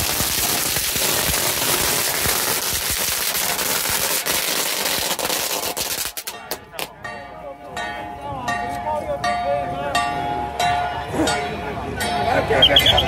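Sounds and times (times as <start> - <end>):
string of firecrackers crackling: 0.0 - 7.0.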